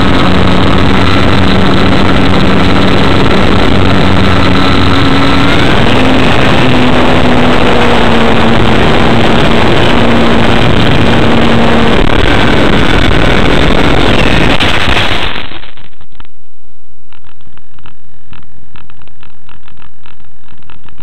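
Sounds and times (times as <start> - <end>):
model airplane motor whine: 0.0 - 15.4
wind rush on microphone: 0.0 - 16.3.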